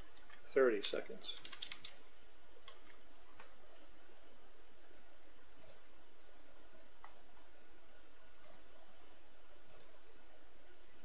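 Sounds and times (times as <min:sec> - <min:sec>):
computer mouse clicking: 0:01.4 - 0:02.0, 0:05.6 - 0:05.8, 0:08.4 - 0:08.7, 0:09.7 - 0:10.0.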